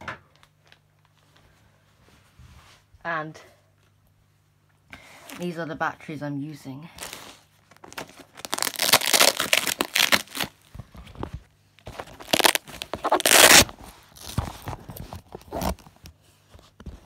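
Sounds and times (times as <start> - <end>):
fabric bag rustling and crinkling: 6.9 - 15.9
bag scraping: 12.0 - 14.6.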